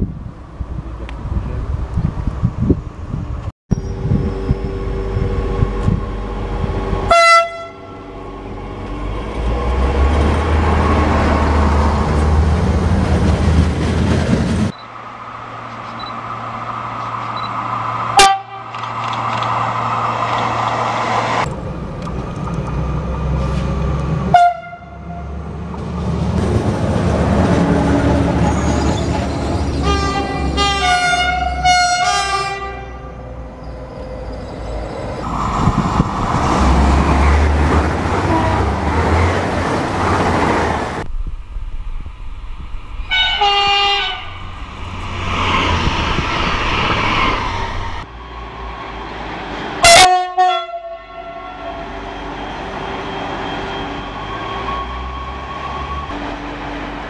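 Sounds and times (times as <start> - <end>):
rumble of passing trains: 0.0 - 57.0
train horn blasts: 7.1 - 8.1, 18.2 - 18.7, 24.3 - 25.3, 29.8 - 33.4, 38.2 - 38.7, 43.1 - 44.4, 49.8 - 52.1.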